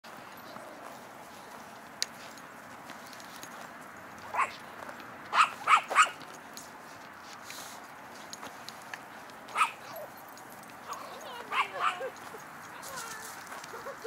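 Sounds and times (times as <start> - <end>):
small dog barking: 4.3 - 4.6, 5.3 - 6.2, 9.5 - 10.1, 10.8 - 13.2.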